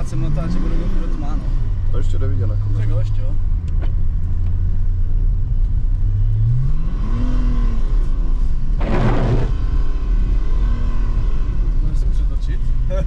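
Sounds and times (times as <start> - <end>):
diesel engine revving: 6.0 - 13.0.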